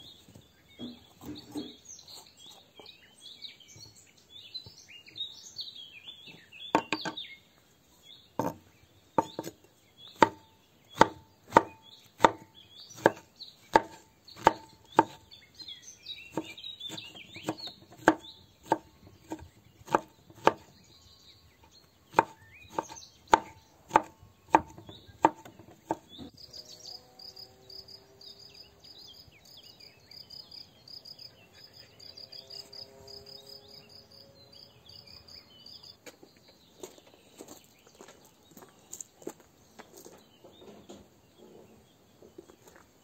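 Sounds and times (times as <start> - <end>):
bird calls: 0.0 - 42.9
knife chopping on wooden board: 6.7 - 7.2, 8.4 - 8.6, 9.2 - 9.6, 10.2 - 15.3, 16.3 - 20.7, 22.1 - 26.3
rapid high bird chirps: 9.2 - 20.8
footsteps on gravel: 36.0 - 40.3.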